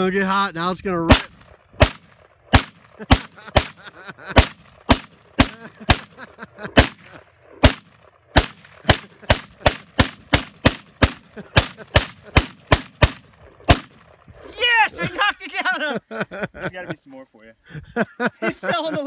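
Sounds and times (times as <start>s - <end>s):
rifle gunshots with echo: 1.0s - 14.5s.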